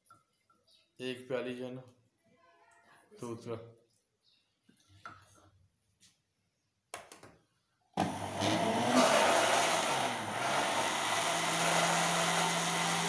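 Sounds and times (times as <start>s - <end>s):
electric blender running: 8.0s - 13.0s.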